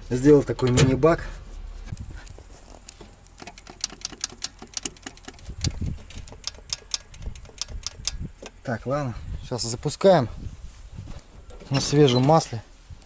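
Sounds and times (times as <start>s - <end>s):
sharp clicks: 2.0s - 8.6s
dull low thumps: 5.3s - 11.5s.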